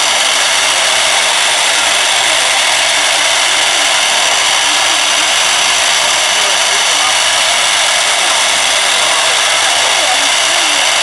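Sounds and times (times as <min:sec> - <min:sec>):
router spindle whine: 0:00.0 - 0:11.0.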